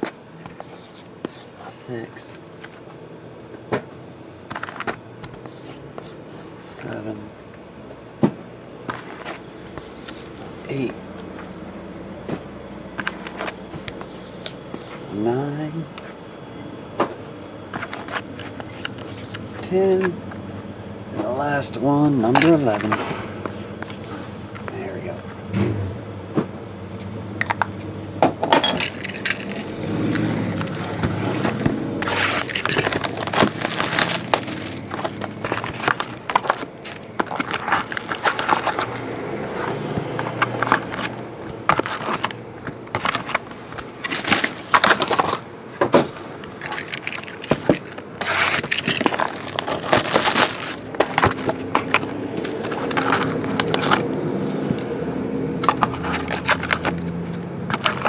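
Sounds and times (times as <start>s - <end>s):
cardboard scraping and rustling: 0.0s - 2.8s, 4.5s - 6.8s, 8.8s - 11.0s, 13.0s - 15.4s, 17.7s - 19.7s, 22.3s - 25.2s, 28.8s - 54.8s, 55.6s - 58.0s
foil packs crinkling: 28.8s - 45.5s, 46.1s - 54.1s, 55.6s - 58.0s.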